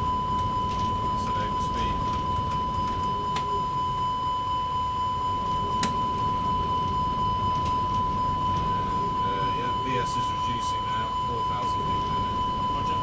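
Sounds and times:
high-pitched electronic tone: 0:00.0 - 0:13.0
low cockpit rumble: 0:00.0 - 0:13.0.

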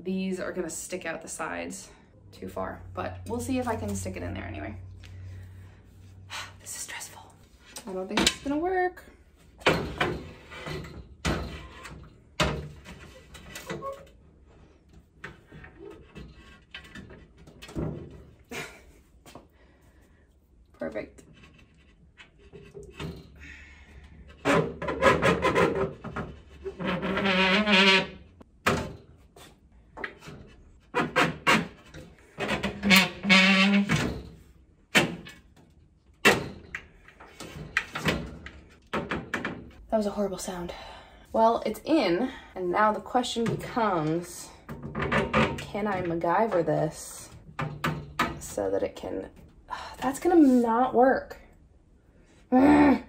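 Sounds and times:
glass shelf squealing: 0:26.6 - 0:28.2, 0:32.7 - 0:34.0.

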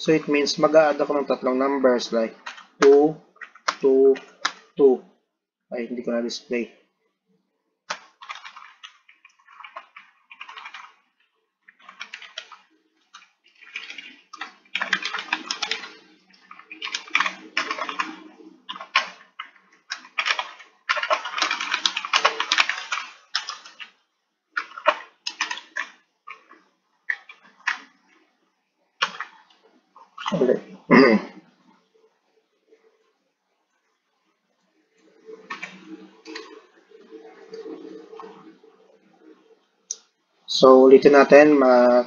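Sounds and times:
computer keyboard typing: 0:00.1 - 0:04.9, 0:07.9 - 0:28.2, 0:29.0 - 0:30.6, 0:35.0 - 0:38.6.

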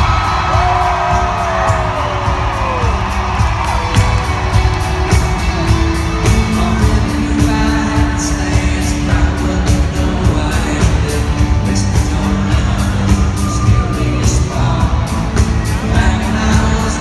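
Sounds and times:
crowd cheering: 0:00.0 - 0:08.3
live band music: 0:00.0 - 0:17.0
person singing: 0:05.3 - 0:17.0.

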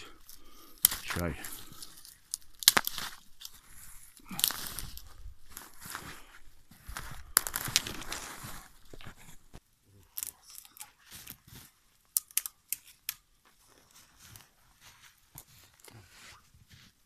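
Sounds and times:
dry twigs crackling: 0:00.0 - 0:16.0
footsteps crunching in snow: 0:00.4 - 0:09.6, 0:11.0 - 0:11.8, 0:13.4 - 0:17.0
sharp clicks and snaps: 0:12.1 - 0:13.3.

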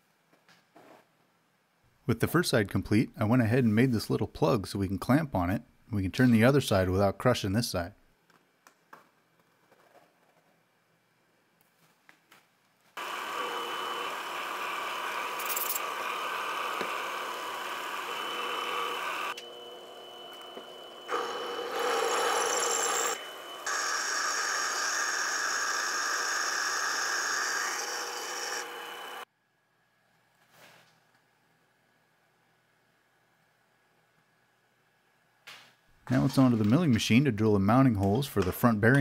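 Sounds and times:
drill bit cutting metal: 0:13.0 - 0:29.2
lathe motor whine: 0:13.0 - 0:29.3.

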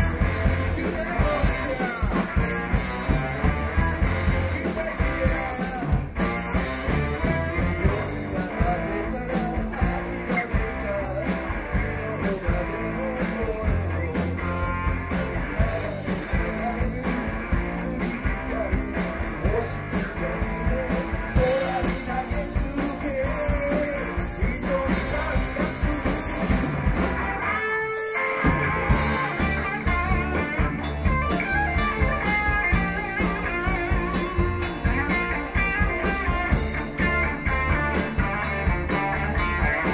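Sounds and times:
drum beat: 0:00.0 - 0:27.4, 0:28.0 - 0:39.9
guitar: 0:00.0 - 0:39.9
rock band playing blues: 0:00.0 - 0:39.9.

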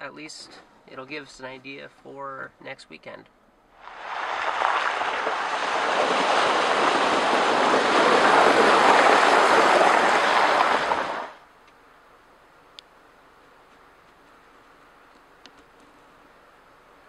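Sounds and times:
tyres splashing through water: 0:03.8 - 0:11.4.

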